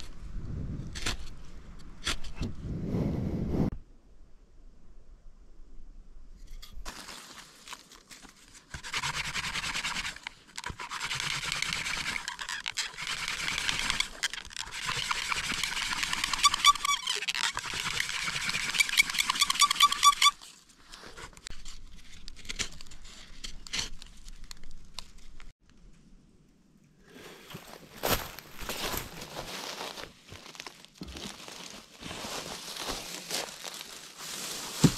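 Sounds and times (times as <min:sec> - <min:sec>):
wooden spindle scraping: 0:08.7 - 0:24.4
wood on wood squeals: 0:13.6 - 0:20.5.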